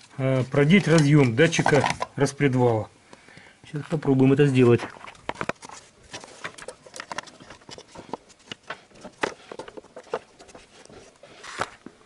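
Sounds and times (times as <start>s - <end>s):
plastic cover clicking and knocking: 0.7s - 2.2s, 5.0s - 10.6s.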